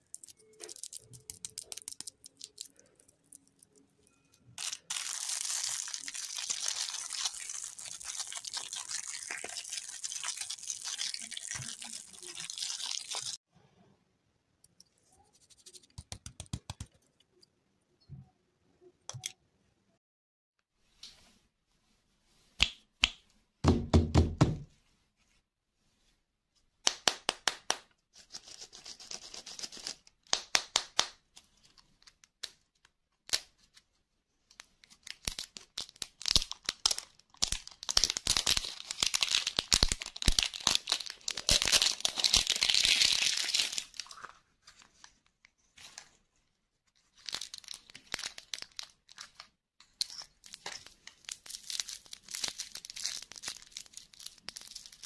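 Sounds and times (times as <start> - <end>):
plastic wrapper crinkling and tearing: 0.0 - 3.8, 4.6 - 13.4, 34.7 - 46.2, 46.9 - 55.0.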